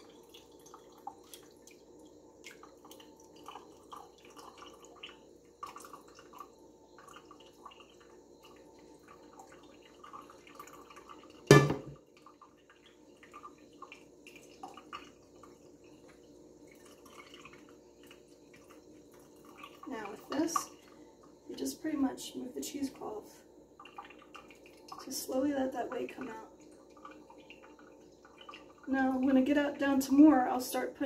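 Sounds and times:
metal pot clunk: 11.5 - 12.0.

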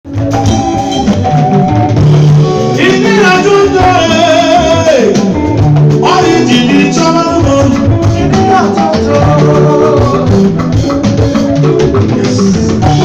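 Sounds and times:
amplified band music: 0.0 - 13.0
person singing: 2.6 - 5.4, 6.0 - 10.6, 11.6 - 13.0.

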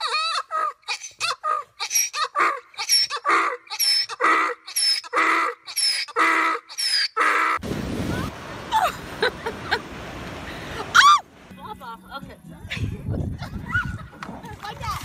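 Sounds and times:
donkey braying: 0.0 - 7.6.

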